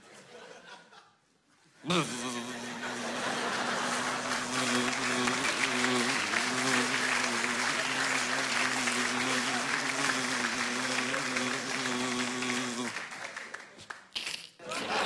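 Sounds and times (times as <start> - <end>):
audience applause and cheers: 2.6 - 13.8.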